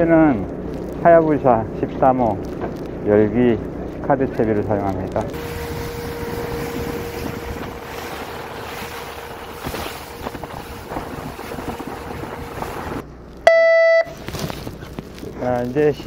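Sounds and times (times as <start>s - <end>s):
wind: 0.0s - 16.0s
sea noise: 5.3s - 13.0s
boat horn beep: 5.4s - 10.2s, 13.5s - 14.2s.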